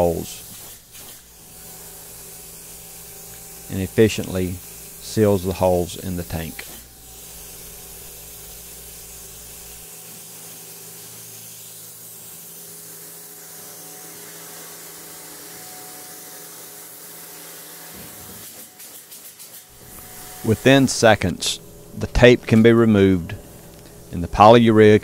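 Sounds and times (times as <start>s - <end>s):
spray equipment hissing: 0.0s - 12.9s, 17.0s - 24.5s
low machine hum: 19.7s - 25.0s.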